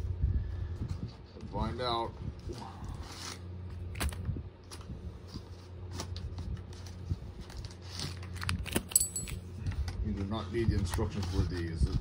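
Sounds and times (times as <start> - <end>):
paper packaging crinkling: 5.6 - 9.0.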